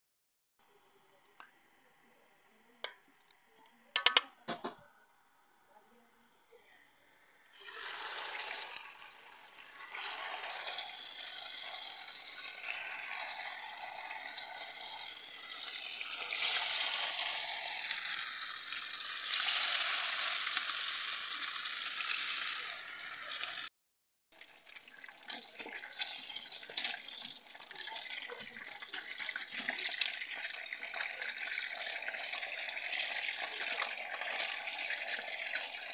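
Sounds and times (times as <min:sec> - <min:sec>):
fish sizzling in hot oil: 0:07.5 - 0:23.7, 0:24.4 - 0:35.9.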